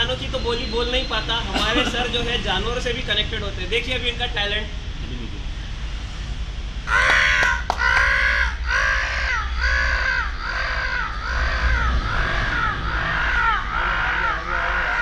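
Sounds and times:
man imitating crow caws: 0:06.9 - 0:15.0.

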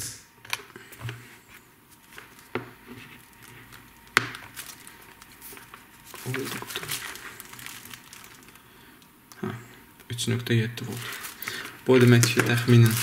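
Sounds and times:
test leads handling noise: 0:10.8 - 0:13.0.

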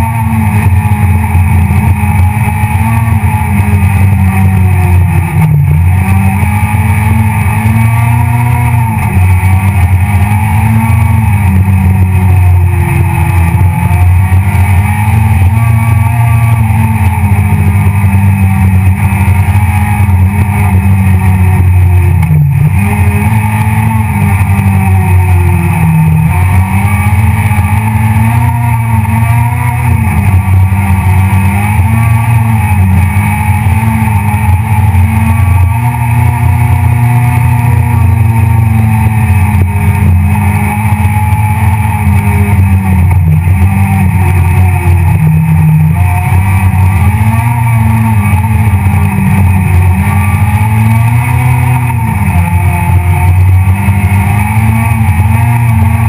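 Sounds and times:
rally car engine revving: 0:00.0 - 0:56.0.

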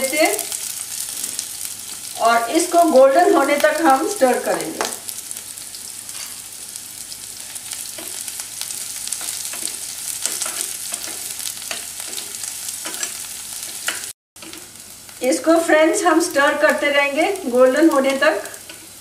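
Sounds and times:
onions sizzling in hot oil: 0:00.0 - 0:19.0
spoon stirring in frying pan: 0:07.5 - 0:14.9, 0:18.0 - 0:19.0.

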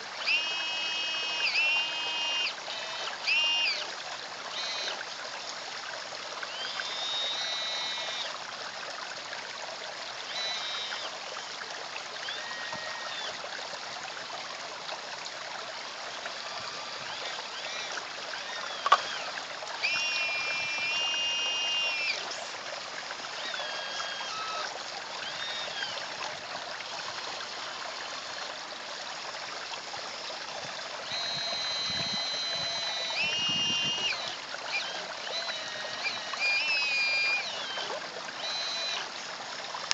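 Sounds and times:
small electric motors whining: 0:00.0 - 0:08.5, 0:10.0 - 0:13.5, 0:15.6 - 0:39.9
pond water trickling: 0:00.0 - 0:39.9
sharp click: 0:18.8 - 0:19.2.

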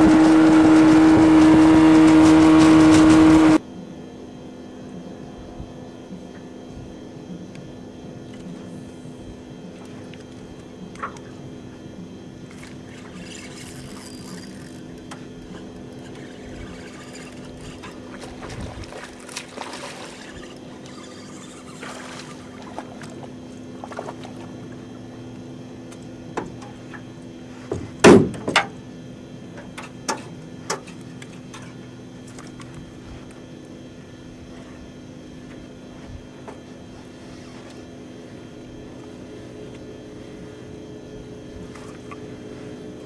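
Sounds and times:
steady low hum: 0:00.0 - 0:43.0
rushing splashy water: 0:18.2 - 0:21.1
sharp knocks on boat: 0:27.7 - 0:28.8.

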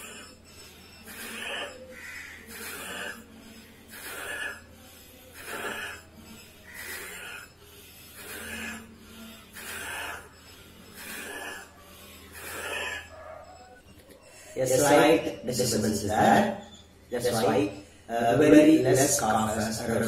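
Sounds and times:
man breathing forcefully: 0:00.0 - 0:13.1.

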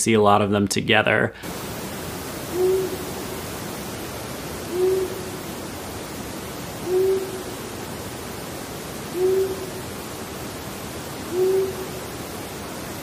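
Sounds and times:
steady background hiss: 0:00.0 - 0:13.0
owl hooting: 0:02.5 - 0:03.1, 0:04.6 - 0:05.6, 0:06.8 - 0:07.7, 0:09.1 - 0:09.9, 0:11.2 - 0:12.1.

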